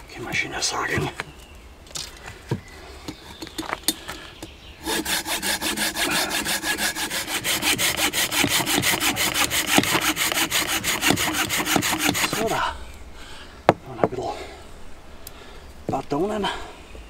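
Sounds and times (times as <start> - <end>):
hand saw cutting branch: 4.8 - 12.6.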